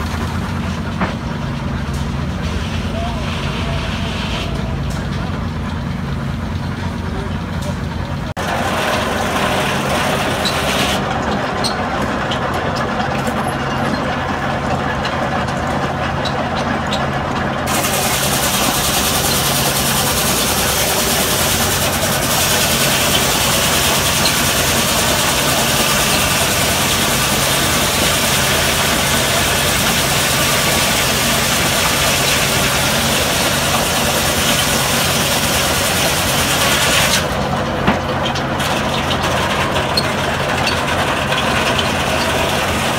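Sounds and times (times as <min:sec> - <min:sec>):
sawmill machinery humming: 0:00.0 - 0:42.9
loud steam hiss: 0:02.4 - 0:04.6, 0:17.7 - 0:37.3.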